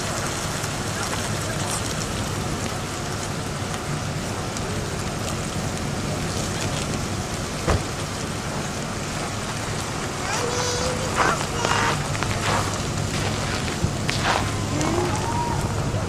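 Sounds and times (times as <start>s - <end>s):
roadside crowd: 0.0s - 16.0s
slow-moving vehicles: 0.0s - 16.0s.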